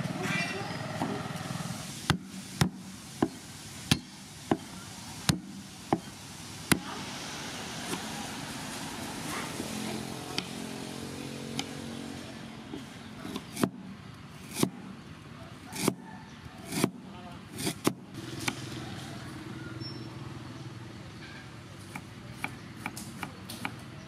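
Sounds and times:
cleaver chopping on wooden board: 13.2 - 13.8, 14.5 - 14.8, 15.8 - 16.0, 17.6 - 18.6.

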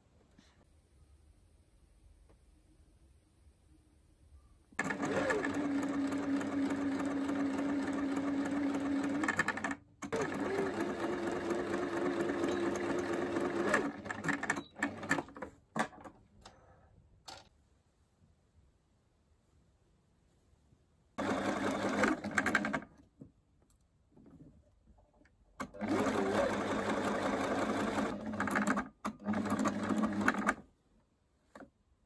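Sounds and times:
sewing machine stitching: 4.8 - 16.1, 21.2 - 22.9, 25.6 - 30.6.

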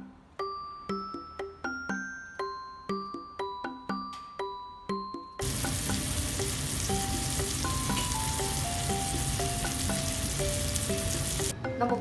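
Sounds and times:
light chime-like background music: 0.0 - 12.0
sausage sizzling in oil: 5.4 - 11.5.

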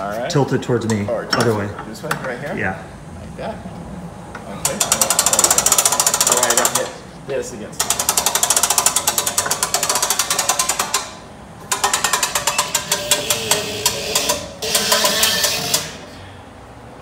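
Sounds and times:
crane winch clattering: 4.6 - 7.0, 7.8 - 16.1.

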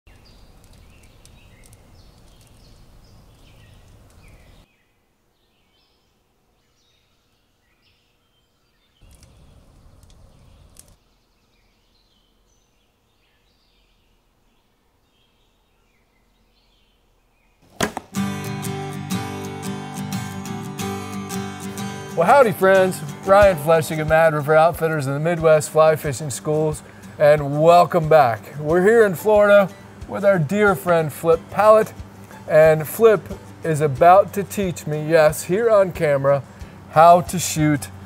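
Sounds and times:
sharp knock: 17.7 - 18.2
strummed acoustic guitar: 17.9 - 38.0.

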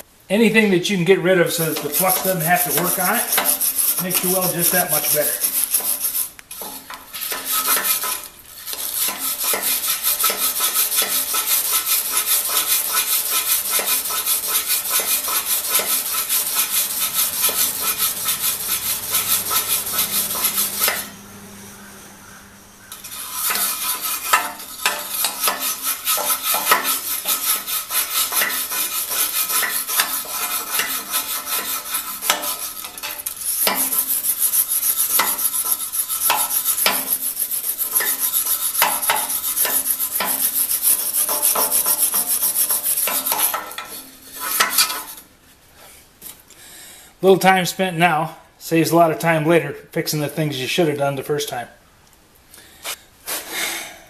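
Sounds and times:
wire brush scrubbing metal: 0.9 - 21.3, 22.8 - 45.3.

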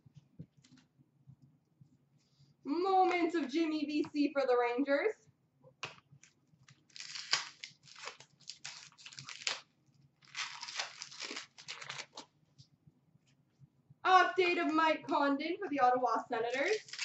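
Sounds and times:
wrapper tearing and crinkling: 6.7 - 12.3, 16.5 - 17.0.

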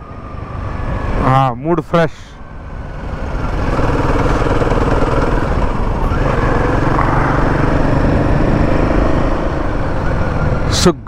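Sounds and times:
wind and road noise: 0.0 - 11.0
motorcycle engine running: 3.0 - 10.5.

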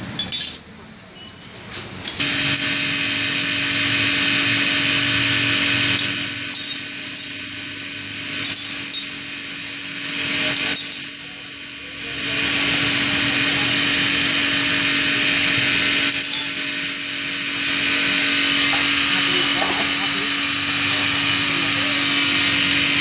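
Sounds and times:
metal tools clinking on metal: 0.0 - 2.2, 6.5 - 7.5, 8.1 - 9.2, 16.1 - 16.7
steady mechanical whine: 0.0 - 23.0.

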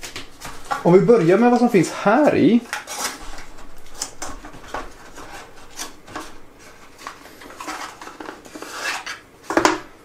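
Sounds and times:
cardboard sleeve rubbing and scraping: 4.5 - 9.2.

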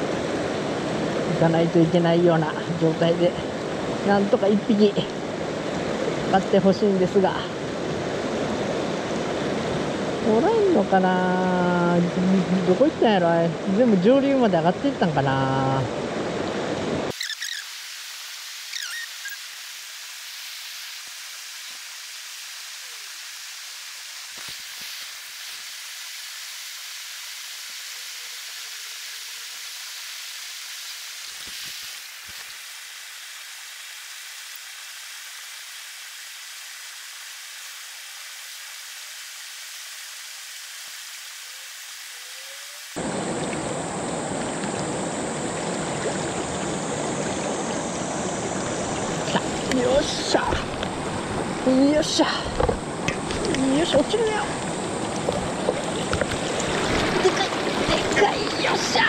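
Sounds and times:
river current rushing: 0.0 - 59.0.

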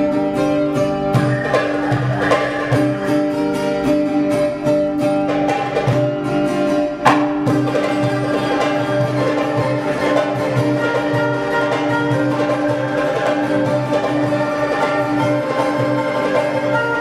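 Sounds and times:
traditional string and percussion ensemble: 0.0 - 17.0
low drum hits: 7.0 - 8.1.

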